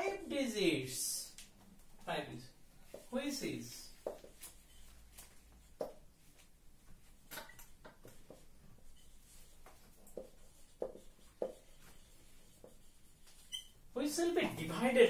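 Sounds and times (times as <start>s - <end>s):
marker pen writing on whiteboard: 2.8s - 15.0s.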